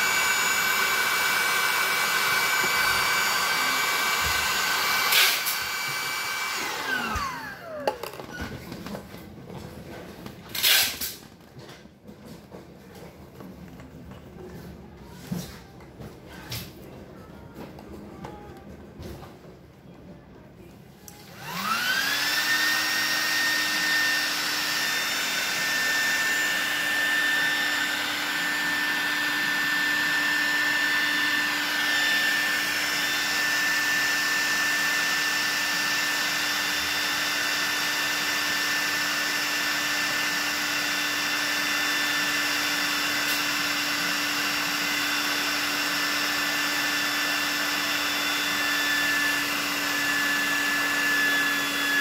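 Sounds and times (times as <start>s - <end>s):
electric air pump whining: 0.0s - 9.0s, 10.5s - 11.2s, 21.1s - 52.0s.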